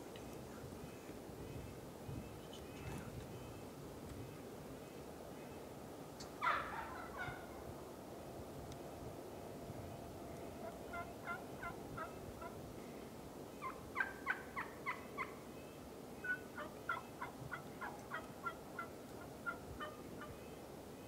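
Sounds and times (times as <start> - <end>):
wild turkeys calling: 6.2 - 7.5, 10.6 - 12.6, 13.6 - 15.5, 16.2 - 20.5.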